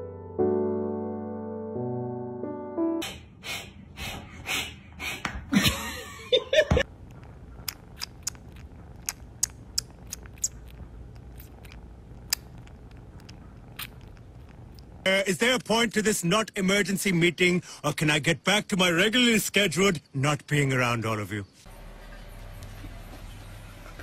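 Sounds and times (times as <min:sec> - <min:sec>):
kitten licking clicks: 0:07.0 - 0:15.0.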